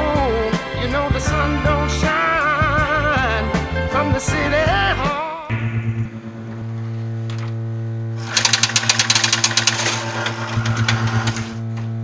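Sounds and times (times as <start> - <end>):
steady electric hum: 5.5 - 12.0
mechanical clicking and rattling: 8.2 - 11.6.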